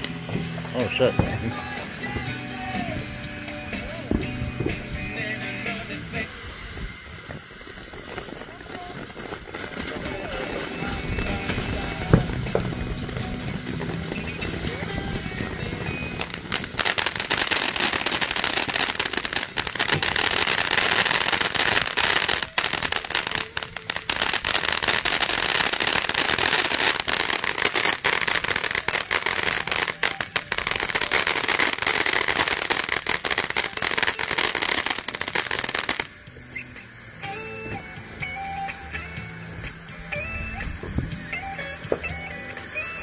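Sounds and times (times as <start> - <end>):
fountain firework crackling sparks: 0.0 - 43.0.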